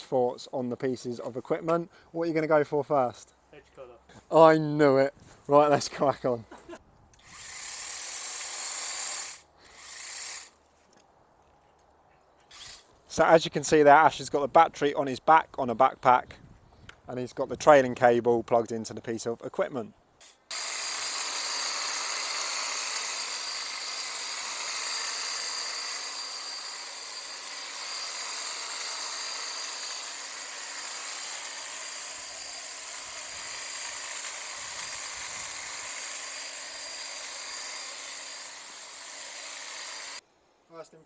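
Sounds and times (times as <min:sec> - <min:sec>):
hedge trimmer motor whine: 0:20.5 - 0:40.2.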